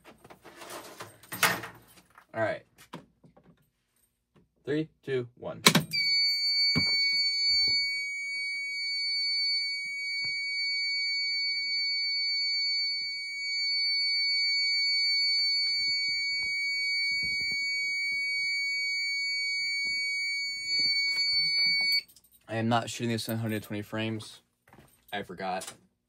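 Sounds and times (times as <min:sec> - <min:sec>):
fire alarm high-pitched tone: 0:05.9 - 0:22.1.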